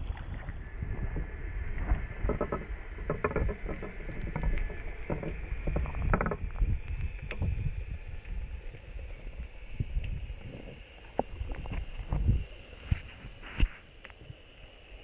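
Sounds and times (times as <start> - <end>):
underwater knocks and clicks: 0.0 - 7.7
muffled underwater water rumble: 0.0 - 15.0.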